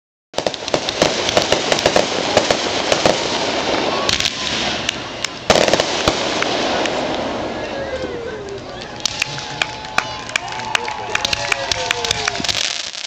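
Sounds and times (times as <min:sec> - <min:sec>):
firework bang: 0:00.4 - 0:07.6
fireworks crackling: 0:00.4 - 0:13.0.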